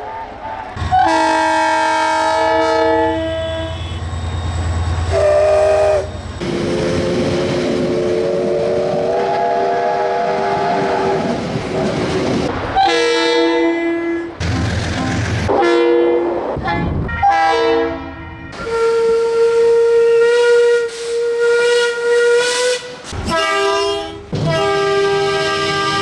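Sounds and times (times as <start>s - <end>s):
train rumbling: 0.0s - 26.0s
train air horn blasts: 0.8s - 4.1s, 5.1s - 11.4s, 12.8s - 26.0s
steam locomotive whistle: 0.8s - 11.4s, 12.8s - 14.3s, 15.0s - 26.0s
long steady horn chord: 0.9s - 4.0s.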